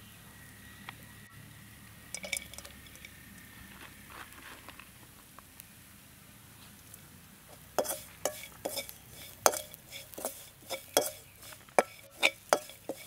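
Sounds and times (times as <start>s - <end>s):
metal spoon clinking in steel pan: 2.1s - 3.1s, 7.8s - 13.0s.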